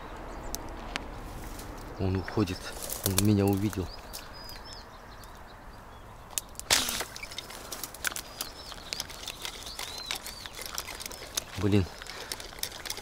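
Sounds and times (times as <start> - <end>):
small birds chirping: 0.0 - 13.0
footsteps through vegetation: 2.4 - 4.2.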